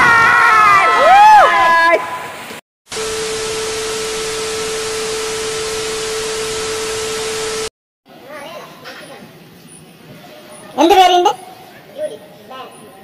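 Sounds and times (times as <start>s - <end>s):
steady tone: 2.9s - 7.7s.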